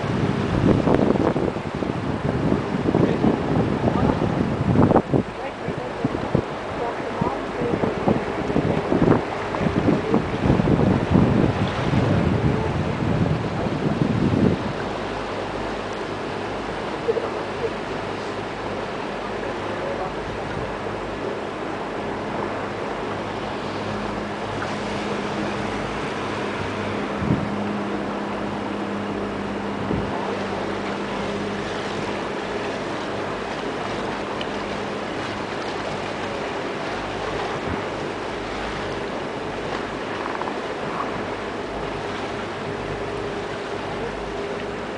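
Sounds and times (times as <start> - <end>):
boat engine humming: 0.0 - 44.9
water rushing past hull: 0.0 - 44.9
wind on microphone: 0.0 - 44.9.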